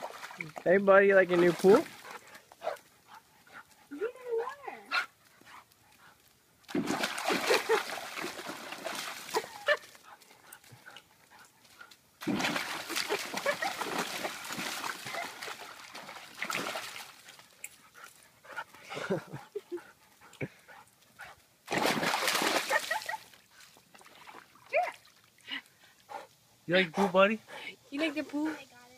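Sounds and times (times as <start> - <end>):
puppy splashing in water: 0.0 - 3.2, 6.7 - 10.2, 12.2 - 17.9, 21.7 - 25.5.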